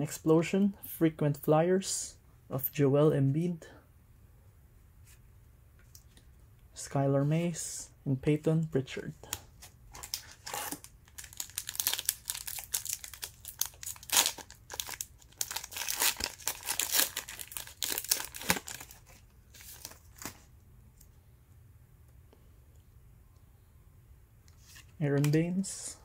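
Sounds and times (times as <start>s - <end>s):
plastic wrapper crinkling and tearing: 9.9s - 20.5s.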